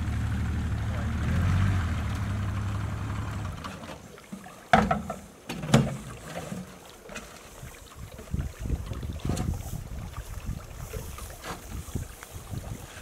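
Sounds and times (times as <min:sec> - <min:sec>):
outboard motor humming: 0:00.0 - 0:06.8
sharp knocks on metal boat: 0:04.7 - 0:06.0.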